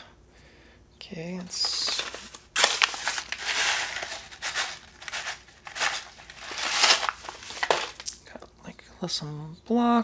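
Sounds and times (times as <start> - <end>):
paper envelope crinkling and tearing: 1.5 - 8.2.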